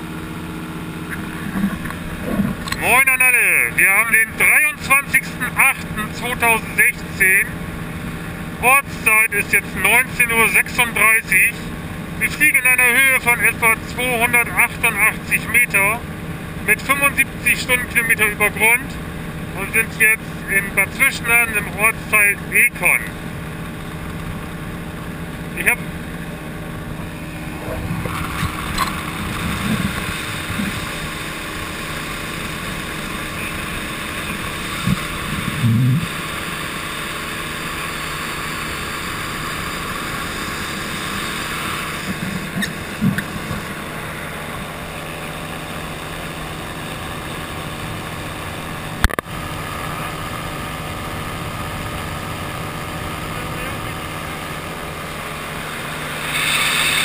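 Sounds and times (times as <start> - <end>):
engine and propeller running: 0.0 - 57.0
low thumps: 34.3 - 36.2, 42.0 - 43.9.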